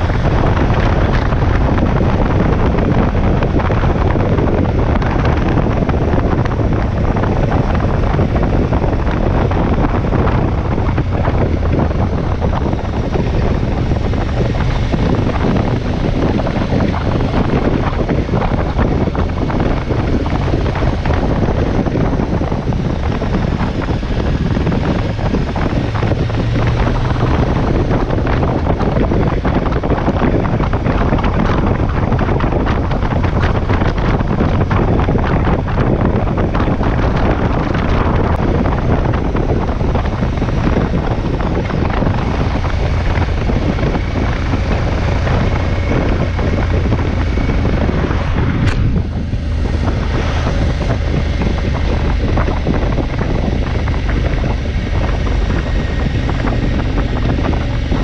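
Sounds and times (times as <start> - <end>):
motorcycle engine running: 0.0 - 58.0
wind buffeting microphone: 0.0 - 58.0.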